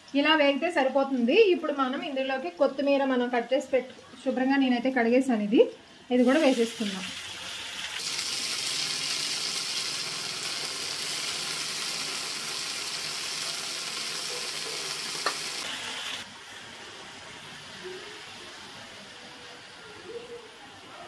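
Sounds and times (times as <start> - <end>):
leaves sizzling in hot oil: 6.1 - 19.1.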